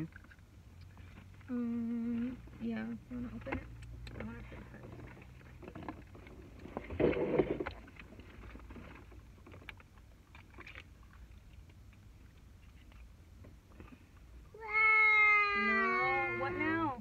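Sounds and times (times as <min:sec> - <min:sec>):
clicks and handling noises: 0:03.2 - 0:14.3.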